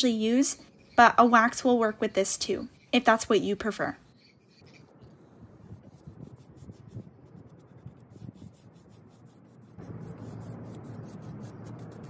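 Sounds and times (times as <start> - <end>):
paintbrush swishing on wood: 5.5 - 12.0.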